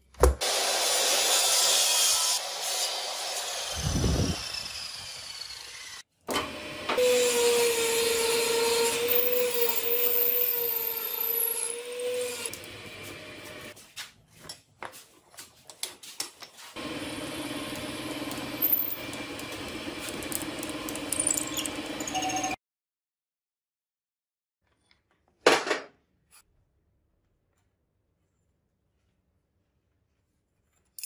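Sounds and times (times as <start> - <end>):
miter saw cutting wood: 0.4 - 13.7, 16.8 - 22.0
lathe drilling into wood: 0.6 - 12.8, 16.8 - 22.1.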